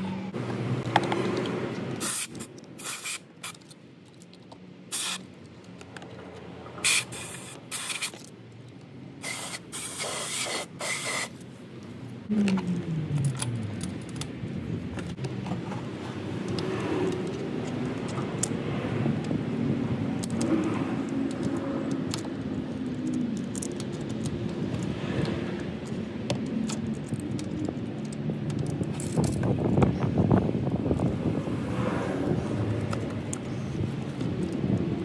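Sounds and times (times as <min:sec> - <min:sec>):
compressed air hissing: 0:02.0 - 0:03.6, 0:04.9 - 0:05.2, 0:06.8 - 0:08.1, 0:09.2 - 0:11.4.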